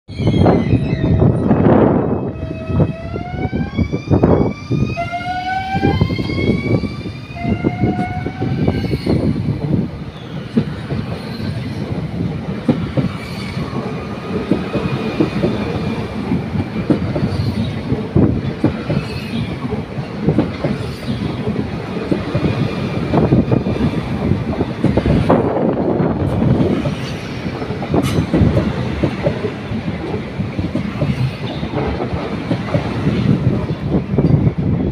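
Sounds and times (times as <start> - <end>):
train carriages rumbling: 0.1 - 34.9.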